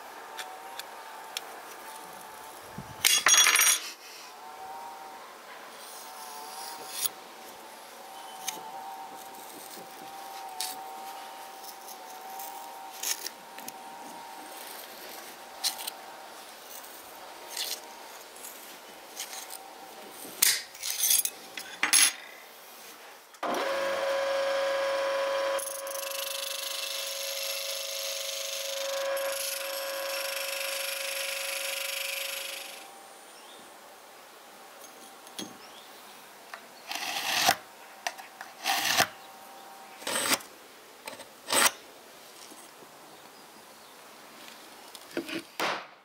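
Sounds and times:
bench grinder whining: 0:23.4 - 0:32.9
metal grinding against wheel: 0:25.5 - 0:32.8.

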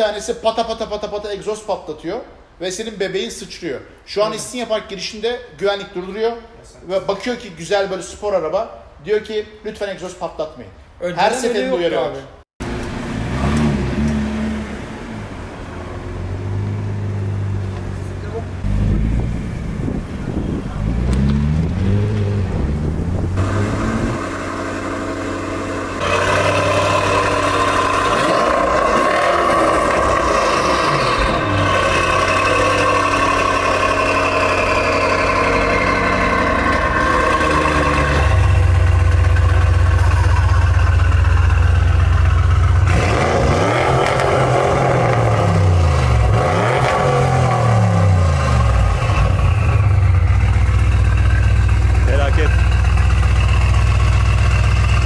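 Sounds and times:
car engine revving: 0:12.6 - 0:55.0.

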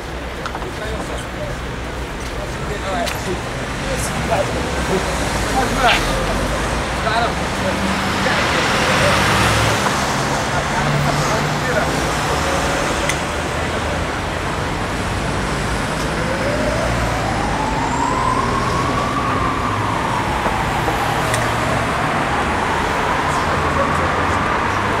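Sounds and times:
city street traffic: 0:00.0 - 0:25.0
slow rising and falling tone: 0:15.8 - 0:24.0.

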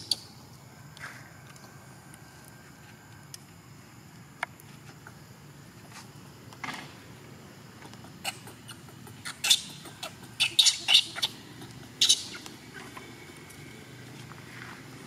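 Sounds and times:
baby monkey shrill squeals: 0:08.2 - 0:11.4, 0:12.0 - 0:12.4.

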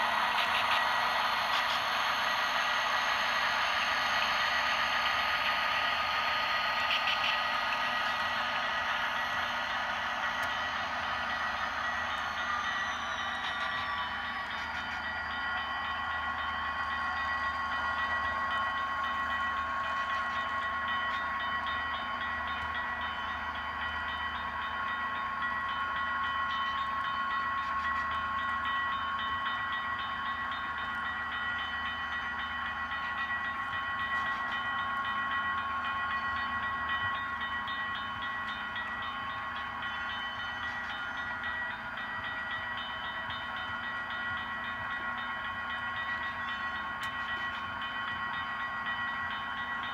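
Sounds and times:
freight cars rolling on track: 0:00.0 - 0:29.6
crossing bell ringing: 0:00.0 - 0:49.9
diesel locomotive drone: 0:00.0 - 0:49.9.

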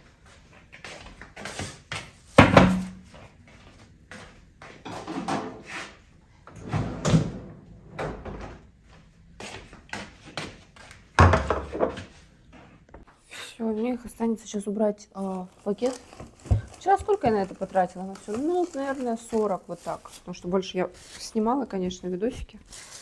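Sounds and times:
kitchen knocks and clatters: 0:02.4 - 0:03.1, 0:04.8 - 0:05.8, 0:11.2 - 0:12.1, 0:16.0 - 0:17.8.

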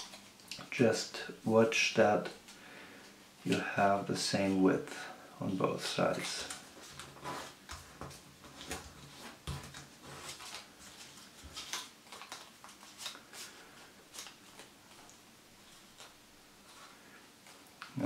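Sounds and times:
banknote crinkling: 0:05.9 - 0:17.0.

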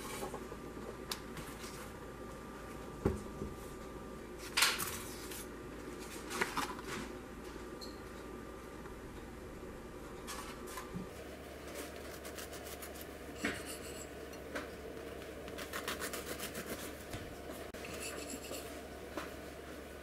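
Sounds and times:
knife sawing through cake: 0:15.6 - 0:17.0.

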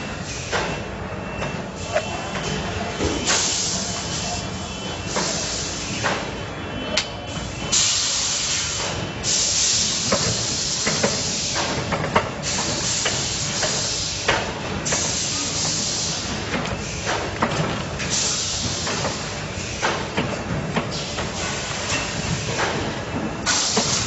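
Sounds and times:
machine hissing: 0:03.2 - 0:06.2, 0:07.7 - 0:17.2, 0:18.0 - 0:19.8.

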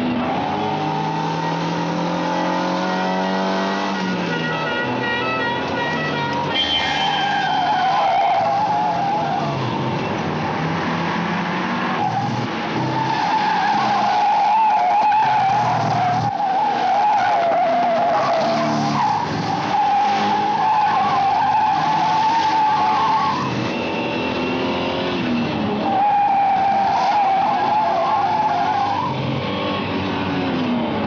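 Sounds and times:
car engine revving: 0:00.0 - 0:31.0
tyres squealing: 0:04.8 - 0:09.8, 0:11.9 - 0:24.7, 0:25.3 - 0:29.4.

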